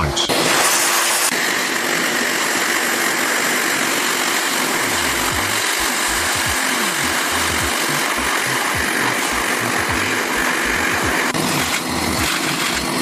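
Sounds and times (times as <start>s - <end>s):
low bass line: 4.9s - 11.2s.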